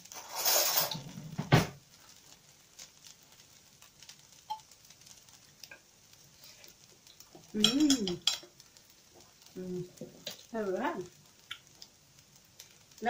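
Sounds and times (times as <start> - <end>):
spoon scraping rice in a pan: 0.0 - 1.4, 4.5 - 10.5
faint small ticks: 10.3 - 12.8.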